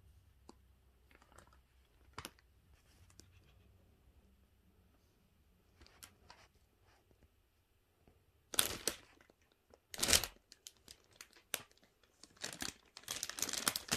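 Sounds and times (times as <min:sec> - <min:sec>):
plastic sheet crinkling: 0:08.5 - 0:13.9.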